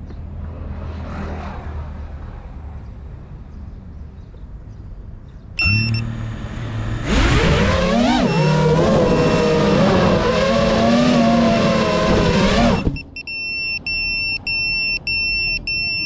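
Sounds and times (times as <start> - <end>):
low hum: 5.6 - 13.0
drone motors whining: 5.6 - 13.2.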